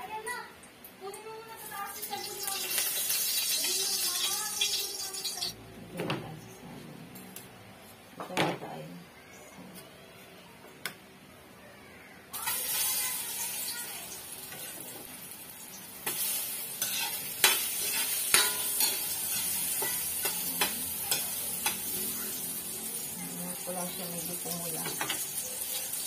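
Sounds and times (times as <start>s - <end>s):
food sizzling in hot oil: 1.5s - 5.6s, 12.3s - 26.0s
spatula scraping a wok: 16.0s - 23.1s.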